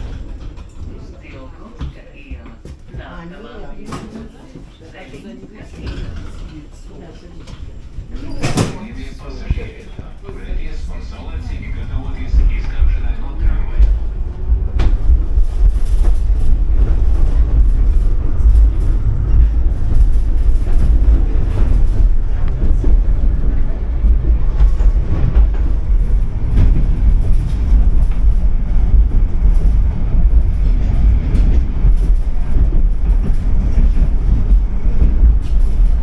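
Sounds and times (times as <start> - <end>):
tram rumbling on rails: 0.0 - 36.0
wheels knocking on track: 8.7 - 36.0.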